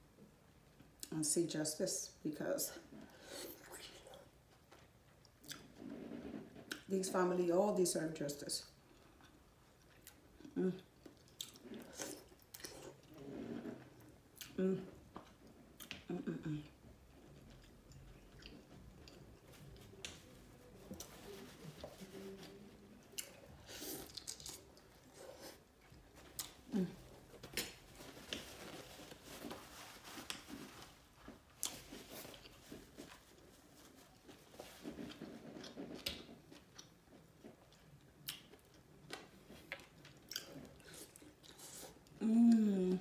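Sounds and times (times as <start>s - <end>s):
close chewing: 8.7s - 29.6s, 30.2s - 42.6s.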